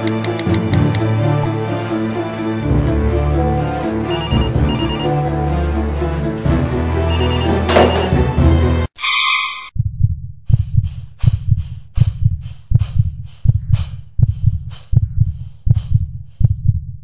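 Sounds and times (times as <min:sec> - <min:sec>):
heartbeat double thump: 0:09.8 - 0:17.0.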